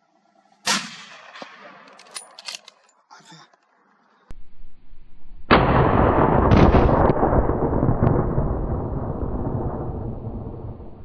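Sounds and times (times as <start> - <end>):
rifle shot booming: 5.5 - 11.0.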